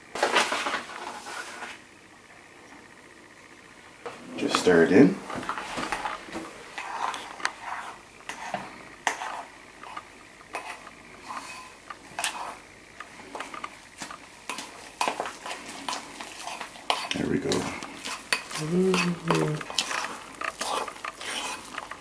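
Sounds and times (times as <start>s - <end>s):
spoon scraping and clinking bowl: 18.0s - 22.0s.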